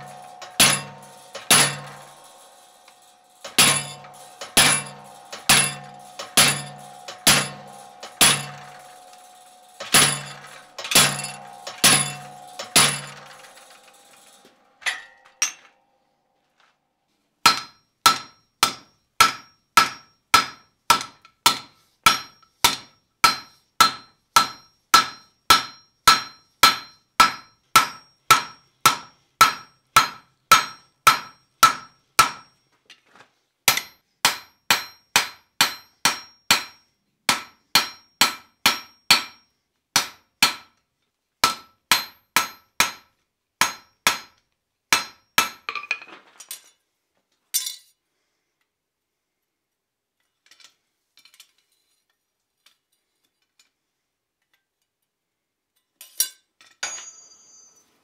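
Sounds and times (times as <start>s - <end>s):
hammer ringing on steel bar: 0.0s - 15.7s, 17.5s - 32.5s, 33.7s - 39.4s, 41.4s - 43.0s.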